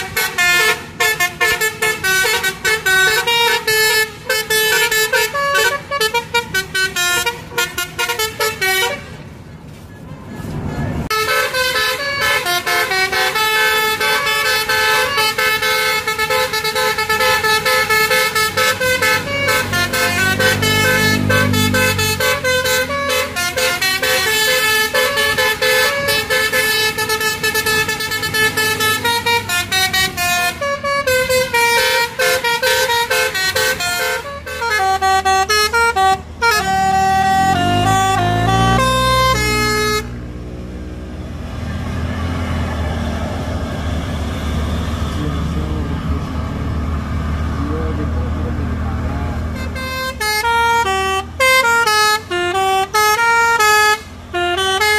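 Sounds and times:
multi-tone air horn melody: 0.0s - 9.2s, 11.1s - 40.2s, 49.5s - 54.9s
bus engine rumble: 0.0s - 54.9s.

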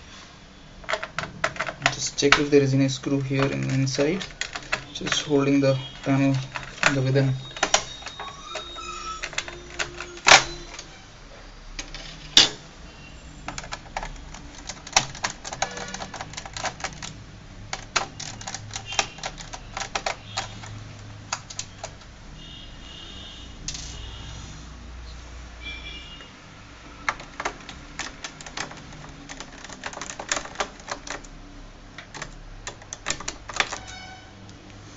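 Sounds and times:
screwdriver clicking on plastic: 3.2s - 10.8s.

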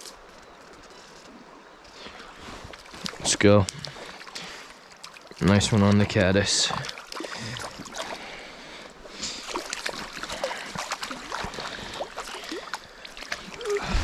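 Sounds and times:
small stream flowing: 0.0s - 14.0s
fish thrashing and splashing: 2.6s - 5.4s, 6.7s - 14.0s
landing net dipping into water: 2.7s - 4.4s, 9.3s - 14.0s.

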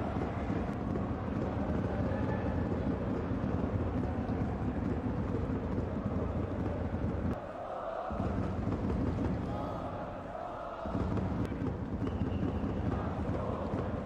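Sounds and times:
faint crowd chanting: 0.0s - 14.0s
stadium crowd din: 0.0s - 14.0s.

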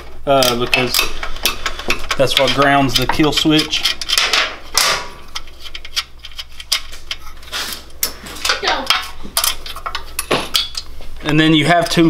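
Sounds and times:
metallic clicking and clinking: 0.3s - 7.2s.

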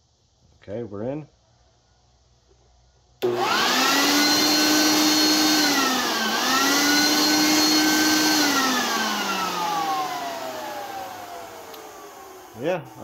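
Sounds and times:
electric blower motor whine: 3.2s - 13.0s.

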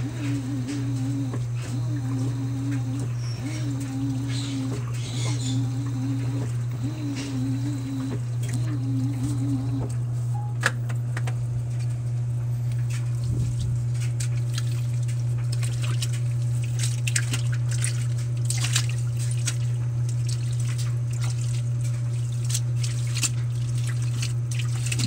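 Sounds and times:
low hum: 0.0s - 14.8s
water splashing in washing machine: 0.0s - 25.0s.

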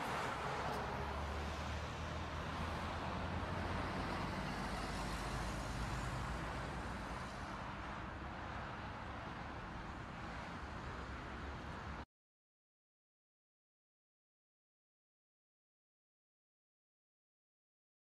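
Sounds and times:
traffic noise: 0.0s - 12.1s.

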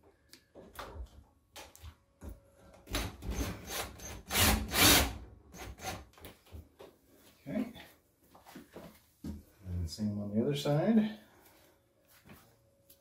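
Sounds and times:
cordless drill driving screw: 3.2s - 6.0s.

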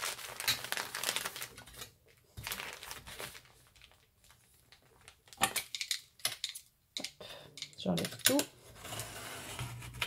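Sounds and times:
paper rustling: 0.0s - 5.4s.

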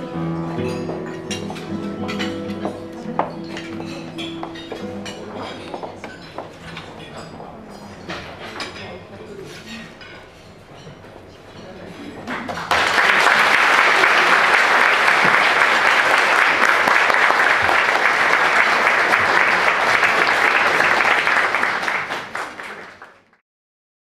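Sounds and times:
audience applauding: 12.3s - 23.4s.

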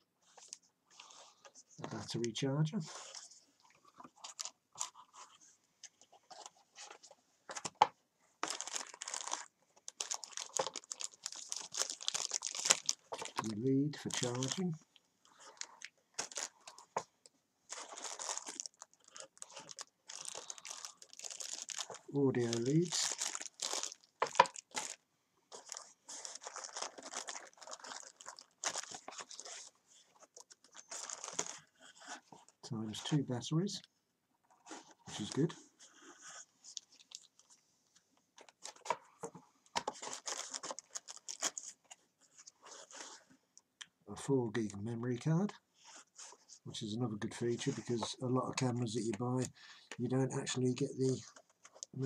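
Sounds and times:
plastic bags crinkling: 8.4s - 13.5s, 15.4s - 17.1s, 17.7s - 31.7s, 36.7s - 37.5s, 39.8s - 41.8s.

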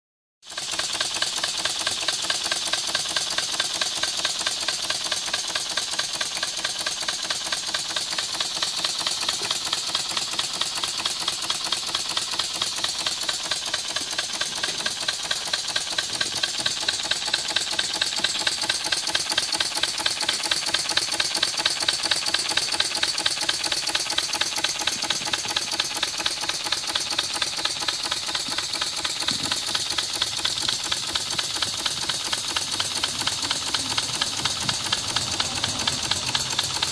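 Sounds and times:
model steam engine running: 0.5s - 36.9s.

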